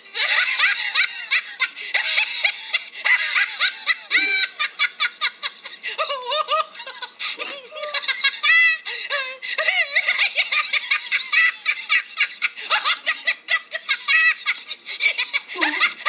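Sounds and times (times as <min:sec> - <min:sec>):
high-pitched human laughter: 0:00.2 - 0:16.0.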